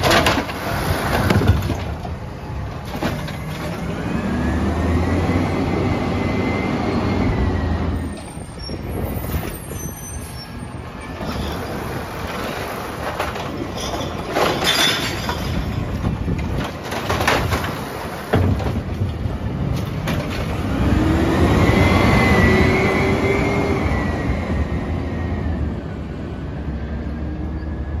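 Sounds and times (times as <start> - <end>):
contents clattering into truck: 0.0 - 3.8, 12.2 - 20.5
garbage truck engine: 0.0 - 28.0.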